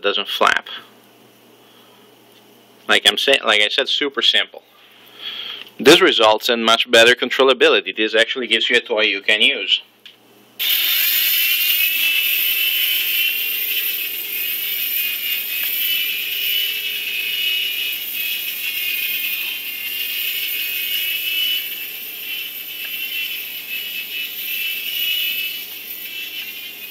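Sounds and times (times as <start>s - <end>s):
rotors buzzing: 10.6s - 26.9s
toy helicopter motors whining: 10.6s - 26.9s.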